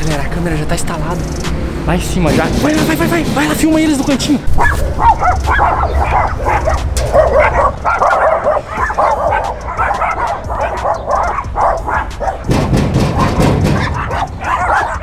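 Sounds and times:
dogs barking: 4.4 - 15.0.

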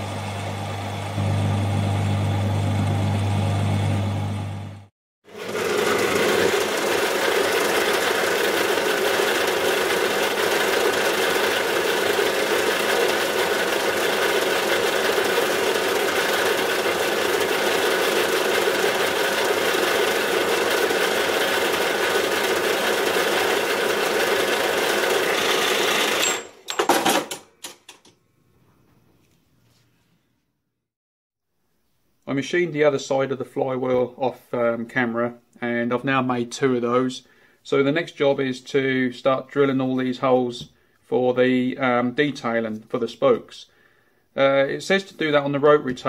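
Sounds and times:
bandsaw cutting metal: 5.3 - 26.8.

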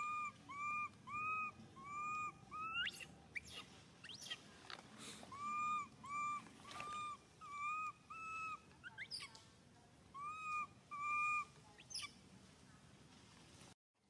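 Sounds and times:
baby monkey coo calls: 0.0 - 4.5, 5.2 - 9.4, 10.1 - 12.2.

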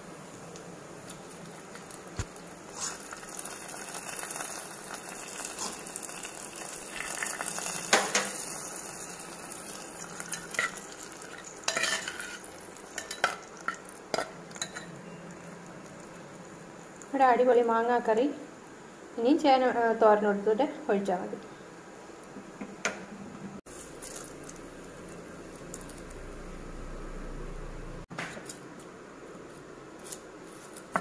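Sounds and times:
spices sizzling in hot oil: 0.1 - 18.5
steel spoon clinking against pot: 11.7 - 12.4.

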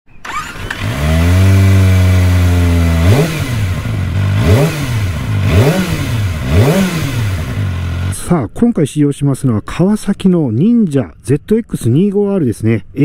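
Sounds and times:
engine revving with throttle blips: 0.2 - 8.2
motorcycle engine idling: 0.2 - 8.2.

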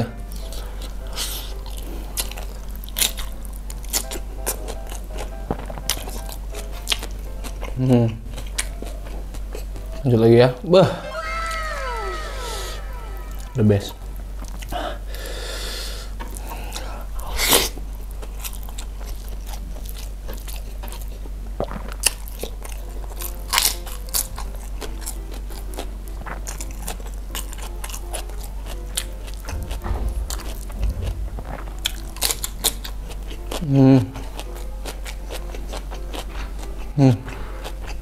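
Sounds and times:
close-up chewing and mouth smacks: 0.4 - 10.2, 17.4 - 29.7.

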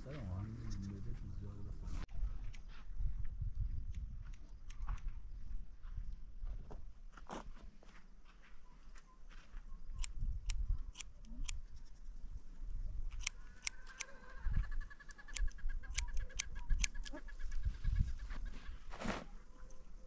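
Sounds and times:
scissors snipping hair: 15.3 - 17.2.

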